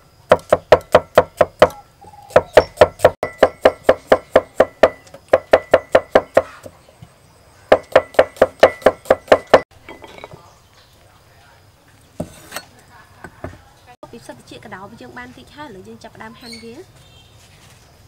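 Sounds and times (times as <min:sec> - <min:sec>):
cleaver chopping on wooden block: 0:00.3 - 0:06.7, 0:07.7 - 0:09.7.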